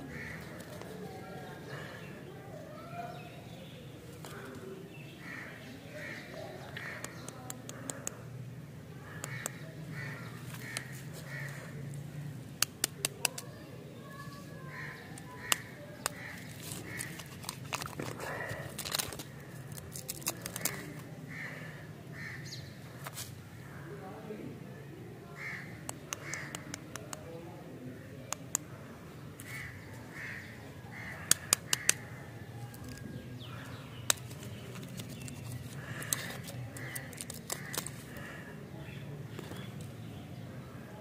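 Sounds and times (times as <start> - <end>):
crows cawing: 0.0 - 0.8, 5.2 - 8.3, 9.0 - 11.8, 14.6 - 22.8, 25.3 - 26.8, 29.4 - 34.2, 35.7 - 39.0
candy wrapper crackling: 15.2 - 21.1, 34.0 - 38.4.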